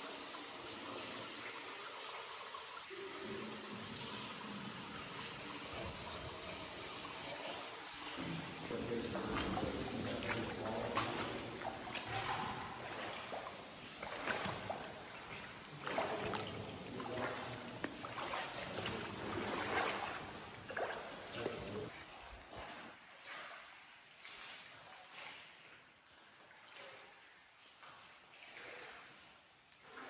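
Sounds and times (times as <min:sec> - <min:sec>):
feet wading through water: 0:07.2 - 0:30.0.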